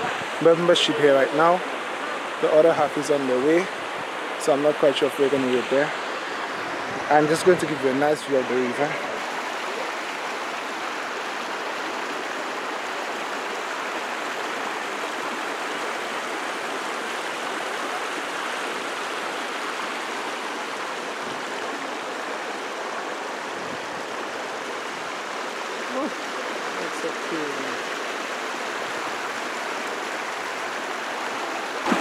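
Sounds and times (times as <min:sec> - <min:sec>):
stream rushing over rocks: 0:00.0 - 0:32.0.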